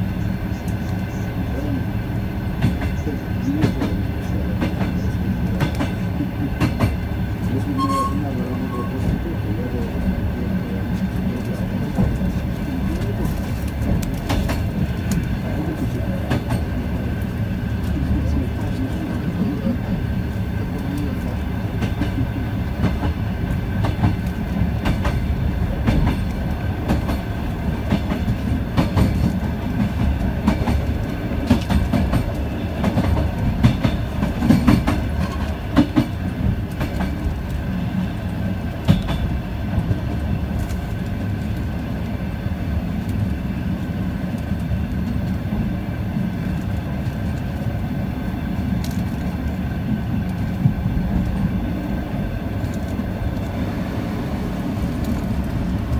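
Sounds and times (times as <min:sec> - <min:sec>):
low rumble of wheels on rails: 0:00.0 - 0:55.9.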